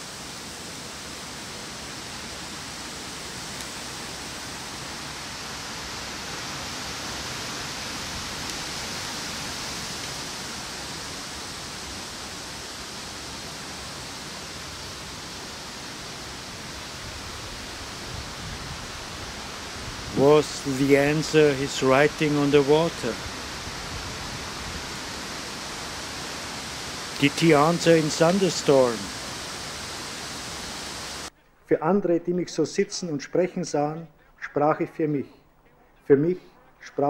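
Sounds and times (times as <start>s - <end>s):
wind through tree leaves: 0.0s - 33.6s.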